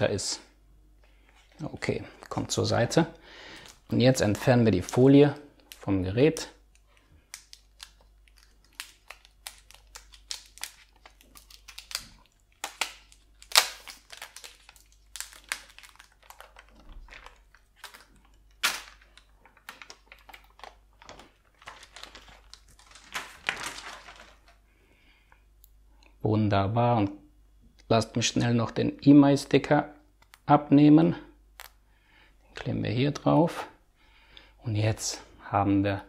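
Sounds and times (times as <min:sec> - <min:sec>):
plastic film peeling: 0:05.6 - 0:24.6.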